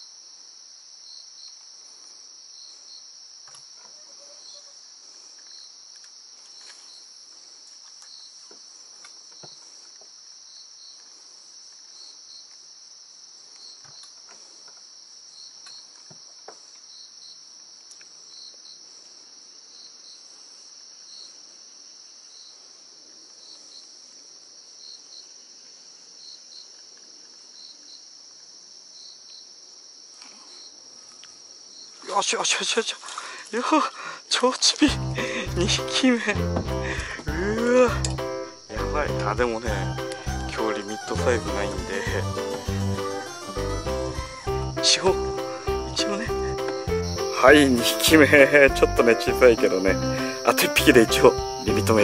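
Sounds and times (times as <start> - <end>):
insect chirping in pulses: 0.0 - 16.0, 27.4 - 52.0
high-pitched insect chorus: 0.0 - 52.0.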